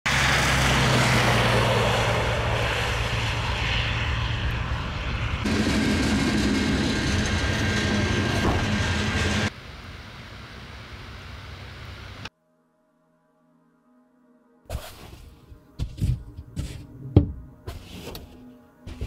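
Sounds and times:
freight train rumbling: 0.1s - 12.3s.

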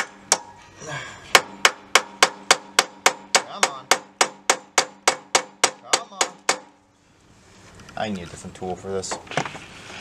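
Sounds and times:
hammer striking metal: 1.3s - 6.8s.

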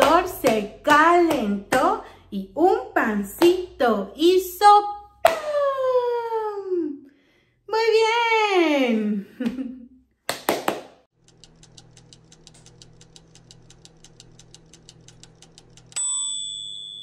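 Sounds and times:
toaster fast ticking: 11.2s - 16.0s
toaster low hum: 11.2s - 17.0s.

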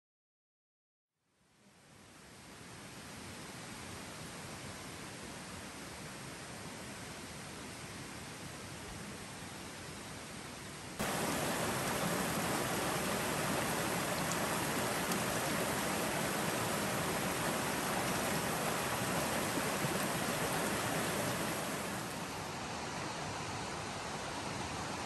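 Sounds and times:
steady rushing noise: 11.0s - 22.7s.

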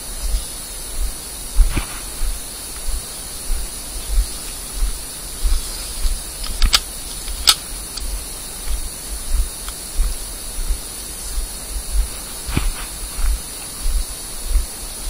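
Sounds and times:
steady hiss: 0.0s - 15.0s
wind rushing on microphone: 0.0s - 15.0s
sharp snaps: 6.4s - 8.1s
thuds on microphone: 11.9s - 14.7s.

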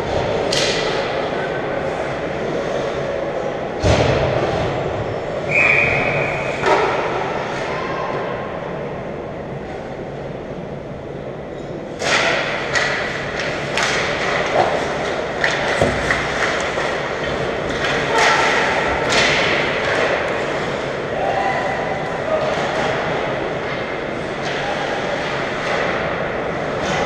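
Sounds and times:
sticks and puck clacking: 0.1s - 1.2s, 11.9s - 21.0s, 22.0s - 27.0s.

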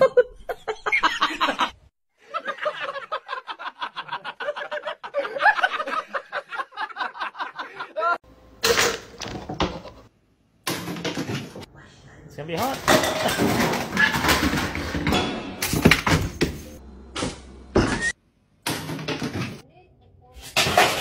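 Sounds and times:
person laughing: 2.6s - 8.2s.

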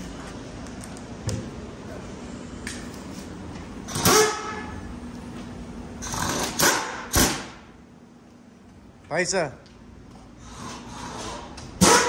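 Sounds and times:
steady low hum: 0.0s - 12.0s
impact wrench bursts: 3.9s - 4.6s, 6.0s - 7.6s, 10.4s - 12.0s.

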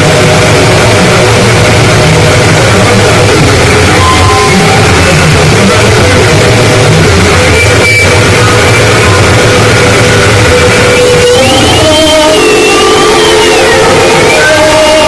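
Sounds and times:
heavy low drone: 0.0s - 11.8s
harsh distorted noise music: 0.0s - 15.0s.

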